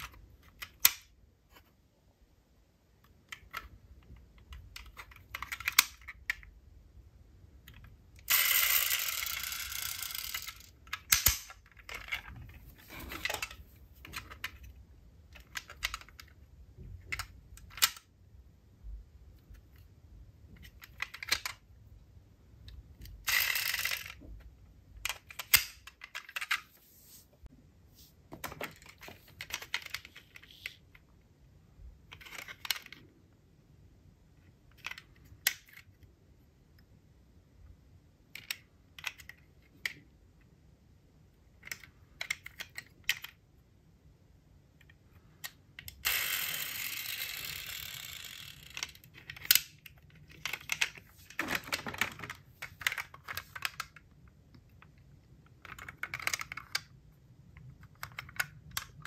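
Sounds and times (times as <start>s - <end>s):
metal toy cars clicking: 4.3s - 6.5s, 7.7s - 12.4s, 23.0s - 24.4s, 44.8s - 54.0s, 54.6s - 56.9s.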